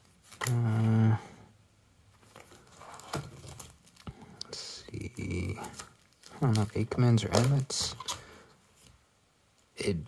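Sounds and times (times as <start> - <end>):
plastic binder pages crinkling: 0.0 - 0.9, 2.1 - 9.0.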